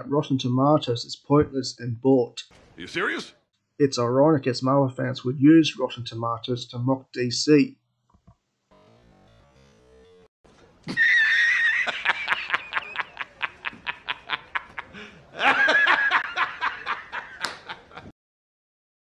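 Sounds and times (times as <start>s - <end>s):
high-pitched laughter: 10.8s - 18.1s.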